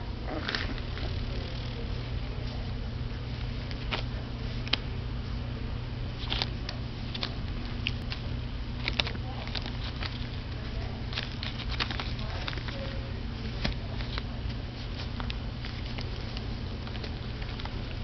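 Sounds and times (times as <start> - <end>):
low hum: 0.0 - 18.0
puppies clicking and smacking: 6.2 - 18.0.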